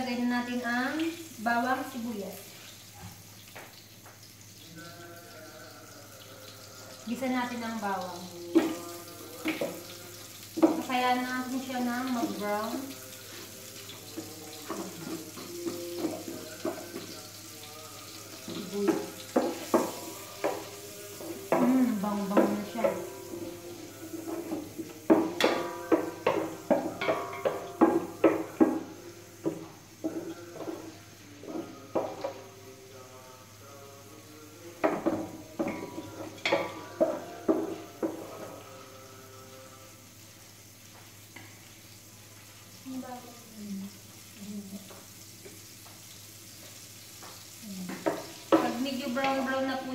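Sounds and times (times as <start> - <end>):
garlic sizzling in butter: 0.0 - 49.9
wooden spatula knocking on pot: 9.4 - 9.8, 10.6 - 11.0, 14.2 - 17.2, 18.4 - 23.6, 24.2 - 32.4, 34.8 - 38.5, 47.9 - 49.5.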